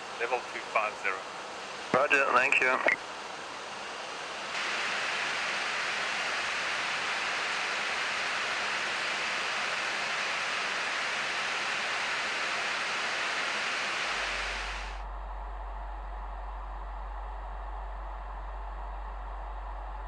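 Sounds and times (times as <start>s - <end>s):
cockpit airflow hiss: 0.0s - 15.0s.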